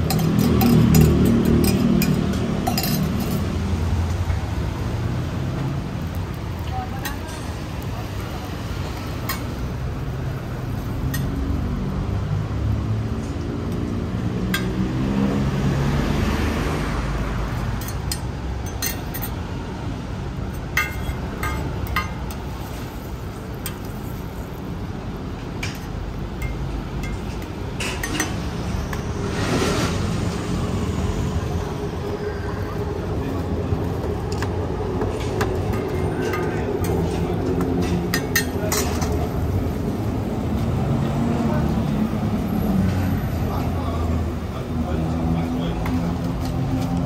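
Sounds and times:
metal utensils clinking on pans: 0.0 - 3.6, 11.0 - 11.4, 17.8 - 19.4, 20.6 - 22.7, 25.6 - 28.5, 35.4 - 39.4
street traffic: 0.0 - 47.0
vehicle passing: 8.0 - 18.2, 28.1 - 47.0.

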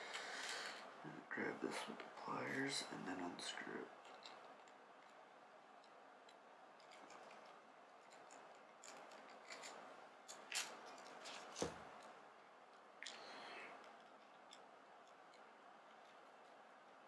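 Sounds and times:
metallic clicks and scrapes of tools: 5.8 - 12.1.

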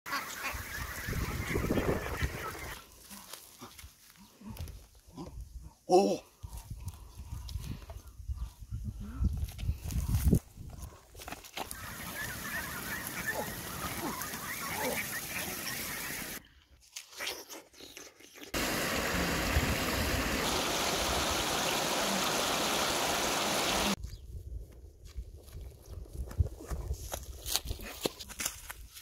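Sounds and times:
ducks quacking: 0.1 - 3.2, 11.7 - 16.4
river rushing over rapids: 18.6 - 24.0.

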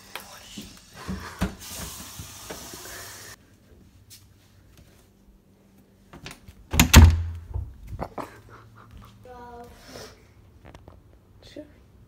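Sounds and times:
running tap water: 0.0 - 3.4.

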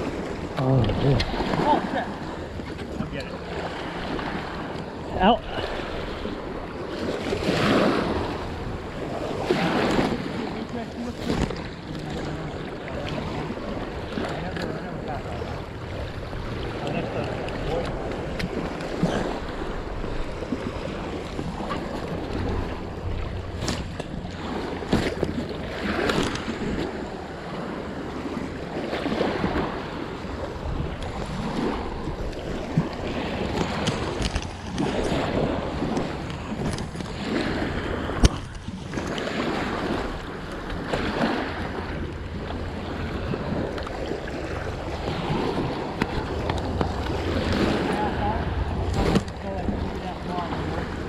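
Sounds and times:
small waves lapping: 0.0 - 51.0
wind on microphone: 0.0 - 51.0.

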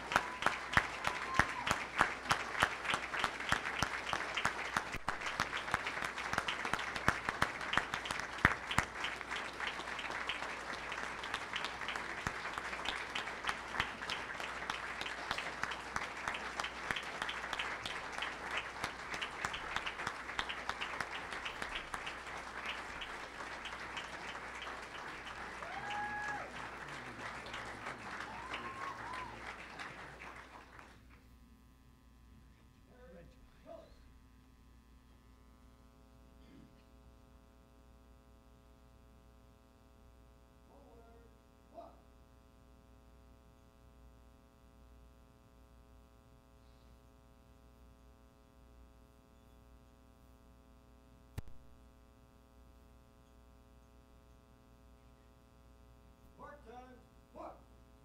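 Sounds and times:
crowd applauding: 0.0 - 31.2
people calling out: 25.5 - 27.2, 27.8 - 29.8.

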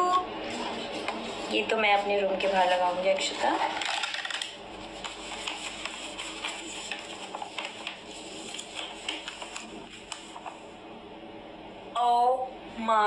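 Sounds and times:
paper crackling and rustling: 0.4 - 10.7.

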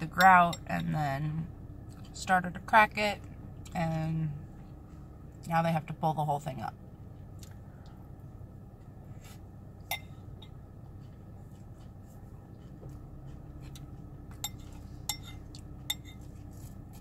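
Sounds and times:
low hum: 0.0 - 17.0
spoon clinking on bowl: 9.9 - 10.5, 14.3 - 16.2.

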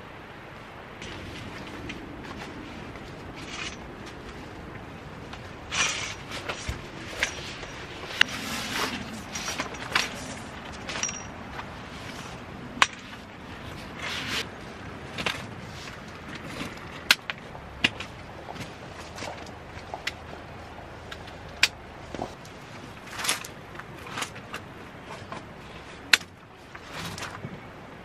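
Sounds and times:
fabric rustling: 1.0 - 16.8
metal frame clicks and knocks: 8.9 - 11.7.

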